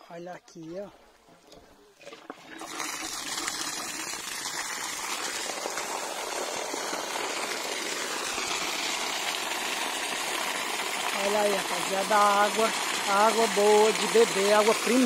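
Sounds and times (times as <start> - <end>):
water gushing and splashing on ground: 2.0 - 15.0.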